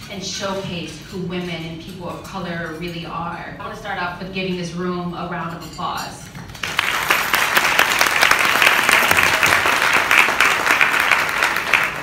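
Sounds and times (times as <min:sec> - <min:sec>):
crowd applauding: 0:06.6 - 0:12.0.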